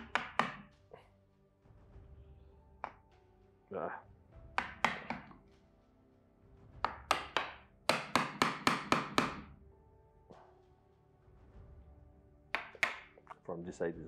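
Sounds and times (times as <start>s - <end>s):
chisel tapping into wood: 0.0s - 0.8s, 4.5s - 5.4s, 6.8s - 9.5s, 12.5s - 13.4s.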